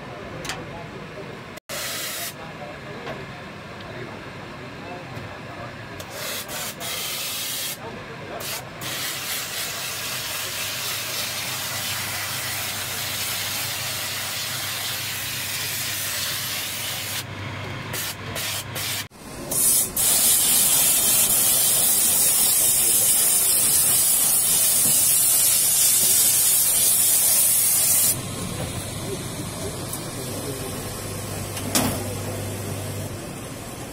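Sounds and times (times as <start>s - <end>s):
steam hissing from nozzle: 1.7s - 2.4s, 6.1s - 7.8s, 8.4s - 17.2s, 18.0s - 28.6s.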